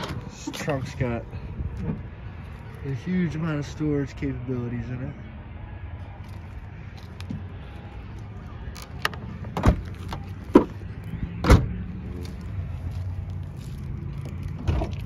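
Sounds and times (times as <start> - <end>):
car trunk knocks and clunks: 9.4 - 9.9, 11.4 - 11.7
car trunk shutting thud: 11.4 - 11.7.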